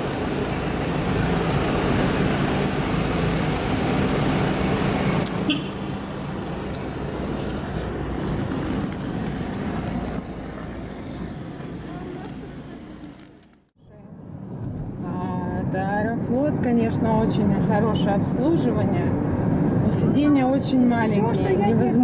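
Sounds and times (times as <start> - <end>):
vehicle engine idling: 0.0 - 13.6
traffic noise: 0.0 - 22.0.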